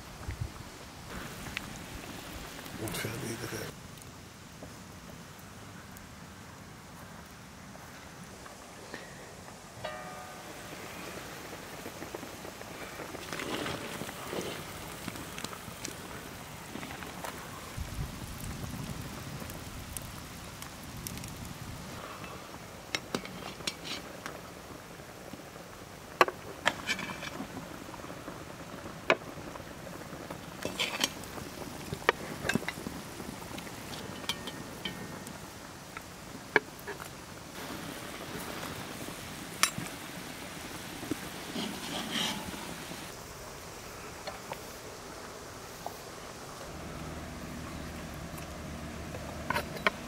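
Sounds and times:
pot simmering hiss: 0.0 - 50.0.

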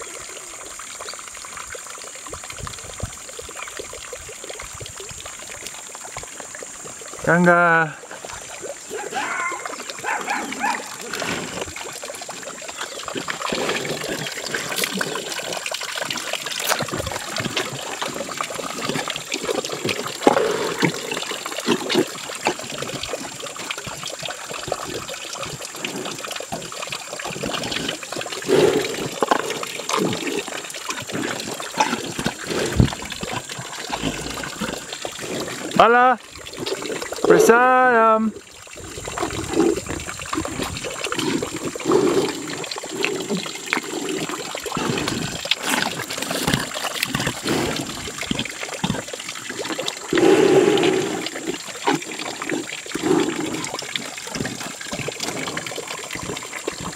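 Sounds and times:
cow slurping and gulping: 0.0 - 56.9.

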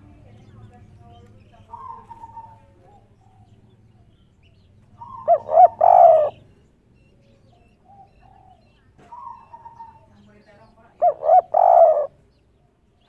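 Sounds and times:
dove cooing: 1.1 - 4.2, 4.8 - 6.6, 7.2 - 10.3, 10.9 - 13.0.

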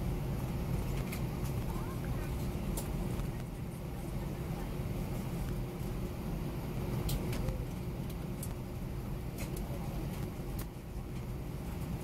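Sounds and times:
jet engines idling low rumble: 0.0 - 12.0.

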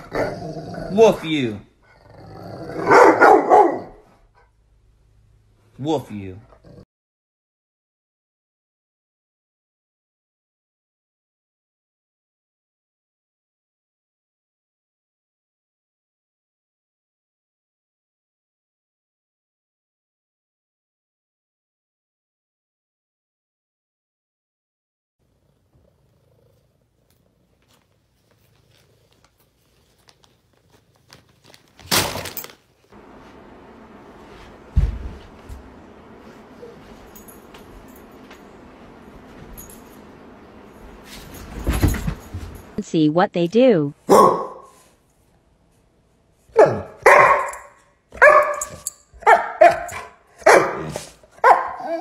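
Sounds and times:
dog barking: 2.8 - 4.1, 44.0 - 44.8, 46.5 - 52.0
bag crinkling and rustling: 29.8 - 32.9
person dropping to the floor: 41.2 - 42.6.

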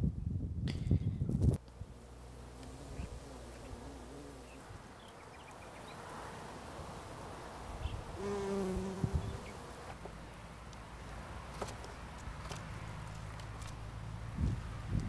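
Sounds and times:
bee buzzing: 1.5 - 10.2.

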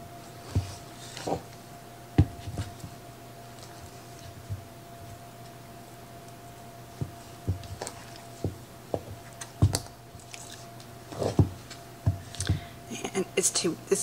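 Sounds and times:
dough squelching: 6.9 - 12.7.

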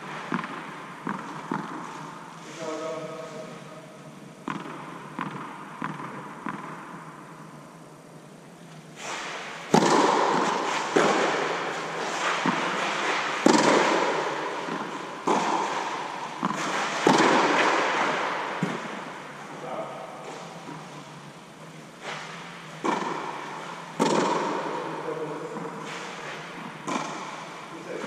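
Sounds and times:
racket striking ball with echo: 0.0 - 2.3, 4.4 - 7.4, 9.1 - 19.4, 22.1 - 27.7
tennis ball bouncing: 0.2 - 2.1, 4.4 - 7.2, 9.7 - 19.4, 22.2 - 24.8, 26.4 - 27.6.

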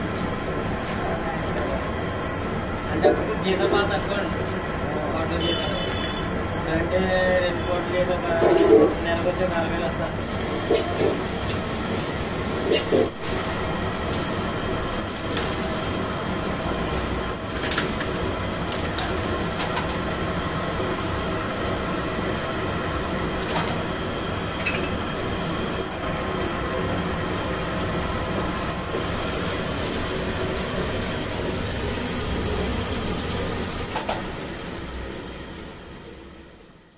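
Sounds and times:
oil sizzling: 10.2 - 36.1.

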